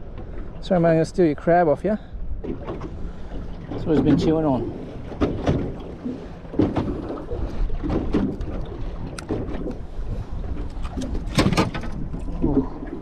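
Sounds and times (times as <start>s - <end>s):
water slapping against hull: 2.3s - 13.0s
knocks on boat: 3.8s - 7.2s, 7.8s - 9.8s, 10.9s - 12.1s.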